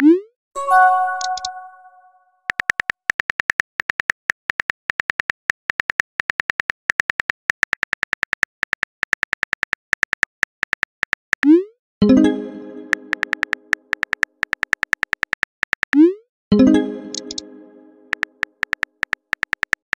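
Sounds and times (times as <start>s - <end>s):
phone keyboard clicks: 13.1s - 16.0s, 18.1s - 20.0s.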